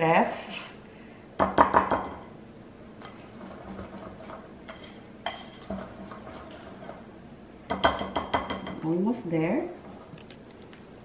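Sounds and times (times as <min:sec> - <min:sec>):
whisk scraping in a bowl: 0:03.0 - 0:07.2.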